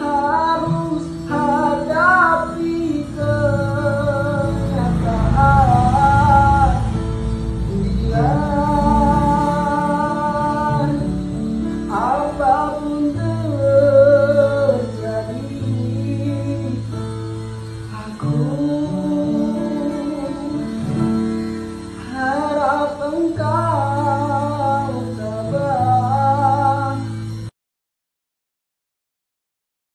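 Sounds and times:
acoustic guitar: 0:00.0 - 0:27.5
man singing: 0:00.0 - 0:27.5.

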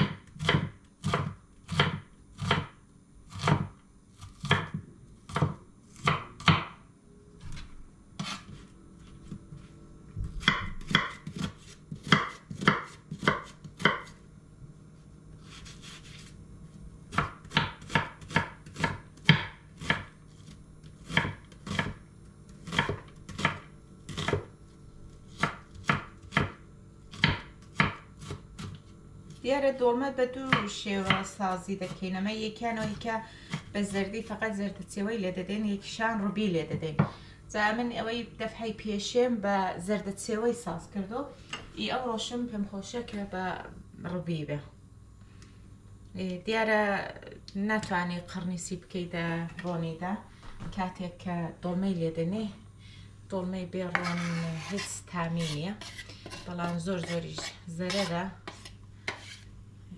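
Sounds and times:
knife chopping on wooden board: 0:00.0 - 0:06.8, 0:08.2 - 0:08.6, 0:10.2 - 0:14.2, 0:17.1 - 0:20.1, 0:20.9 - 0:22.0, 0:22.6 - 0:24.5, 0:25.3 - 0:28.9, 0:53.9 - 0:59.4.

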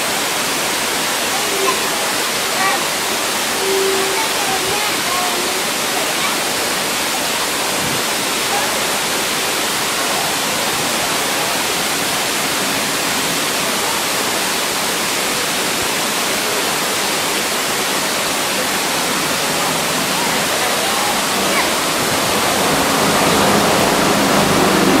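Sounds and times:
city street rushing hiss: 0:00.0 - 0:25.0
faint distant voices: 0:00.0 - 0:25.0.

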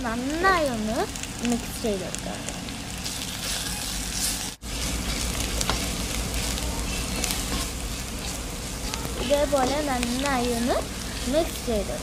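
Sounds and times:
onions sizzling in oil: 0:00.0 - 0:12.0.

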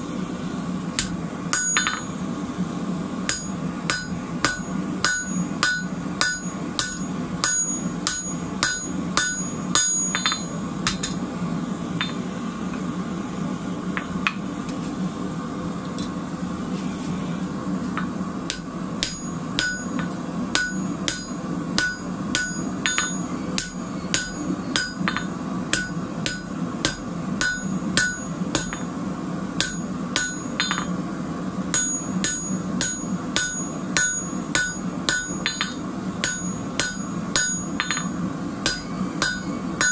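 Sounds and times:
steady low hum: 0:00.0 - 0:39.9
hammer striking metal on anvil: 0:01.0 - 0:02.2, 0:03.3 - 0:11.2, 0:18.0 - 0:28.9, 0:29.6 - 0:31.0, 0:31.7 - 0:39.9.

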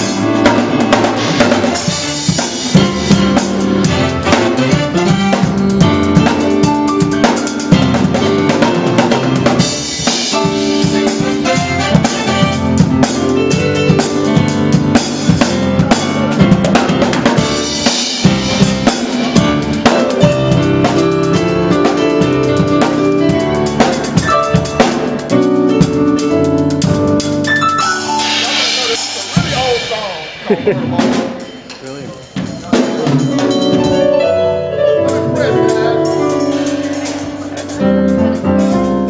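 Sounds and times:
drum kit groove: 0:00.0 - 0:39.0
keyboard chords: 0:00.0 - 0:39.0.

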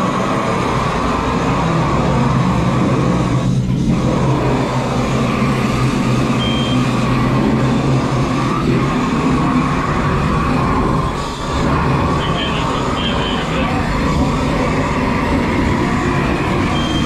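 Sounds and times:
large vehicle engine running: 0:00.0 - 0:17.0
short high beep: 0:06.4 - 0:06.8.

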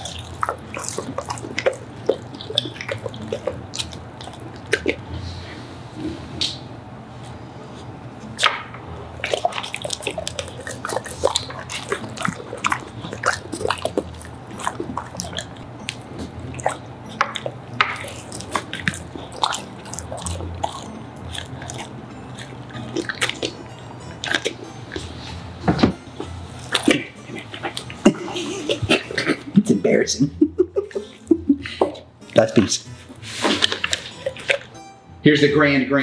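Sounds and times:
dog chewing and smacking: 0:00.0 - 0:05.0, 0:09.2 - 0:23.6, 0:24.2 - 0:25.1, 0:26.2 - 0:29.4, 0:33.6 - 0:34.8.

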